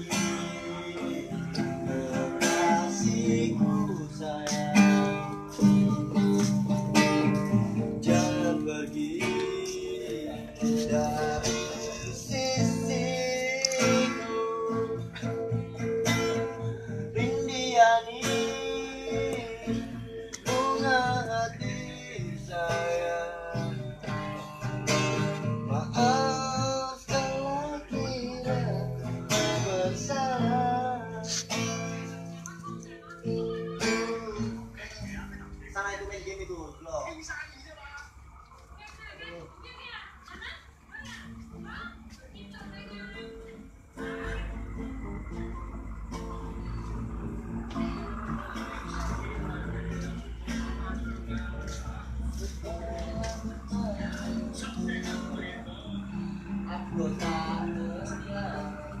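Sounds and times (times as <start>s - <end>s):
acoustic guitar strumming: 0.0s - 59.0s
person singing: 8.0s - 15.7s, 16.3s - 23.8s, 47.7s - 59.0s.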